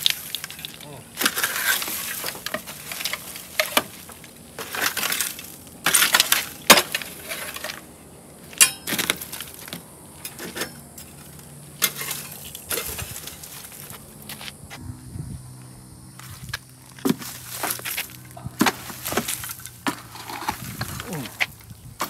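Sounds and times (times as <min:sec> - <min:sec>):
metallic clinks and scraping of tools: 0:08.5 - 0:14.6.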